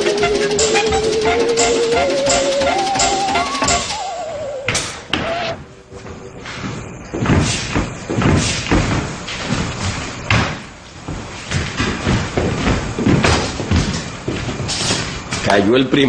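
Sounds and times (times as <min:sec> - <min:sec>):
thumps and bangs: 0:06.5 - 0:15.5.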